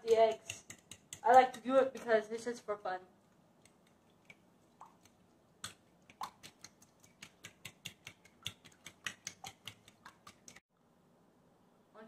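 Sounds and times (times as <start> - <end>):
fork clicking against glass bowl: 0.4 - 1.6.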